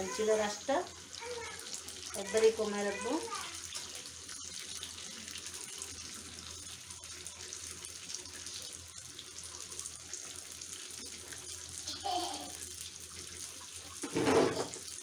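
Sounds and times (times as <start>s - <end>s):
deep-frying sizzle and crackling: 0.0s - 15.0s.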